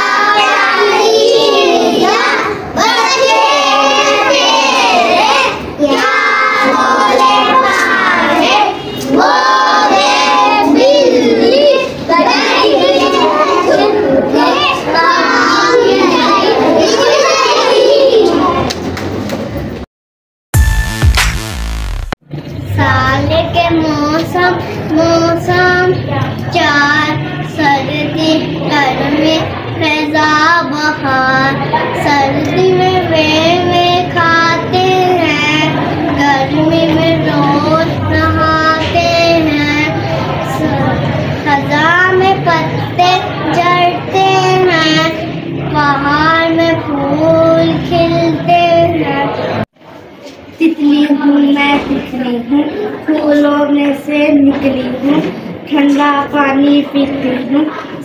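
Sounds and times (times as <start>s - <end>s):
child singing: 0.0s - 18.6s, 22.8s - 49.4s
musical accompaniment: 20.6s - 22.2s.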